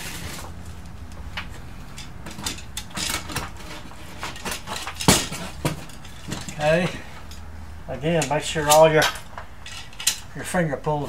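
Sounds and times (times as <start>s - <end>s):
metal clicks and clinks: 8.2s - 10.3s.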